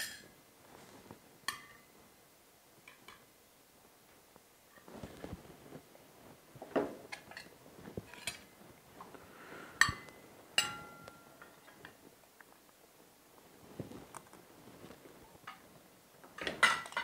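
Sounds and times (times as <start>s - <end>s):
cutlery scraping on plates: 7.1s - 8.6s.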